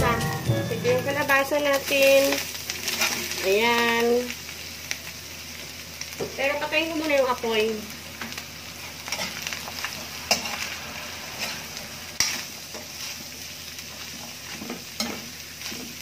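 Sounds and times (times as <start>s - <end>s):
food sizzling: 0.0s - 16.0s
metal spatula scraping pan: 10.2s - 13.1s.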